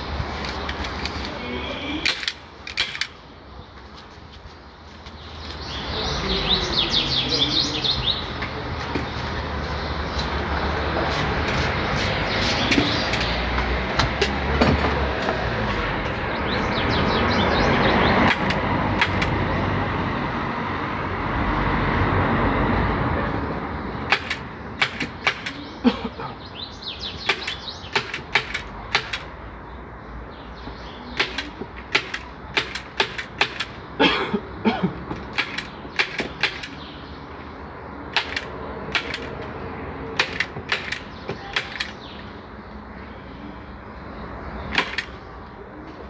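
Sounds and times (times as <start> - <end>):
staple gun clicks: 31.2 - 33.7, 35.3 - 36.8, 40.2 - 42.0.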